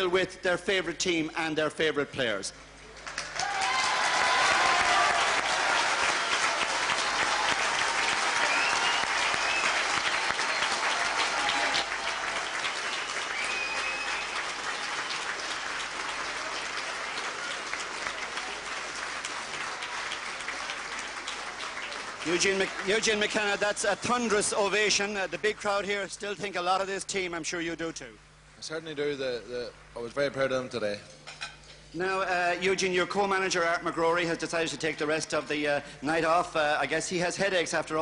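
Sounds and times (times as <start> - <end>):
crowd applauding: 2.9 - 25.8.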